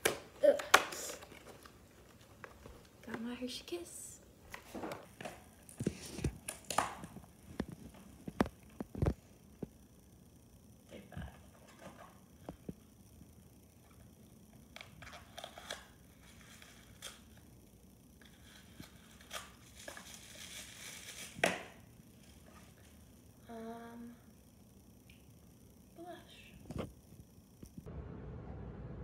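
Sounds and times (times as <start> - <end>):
paper and cardboard crinkling: 18.3 - 21.4.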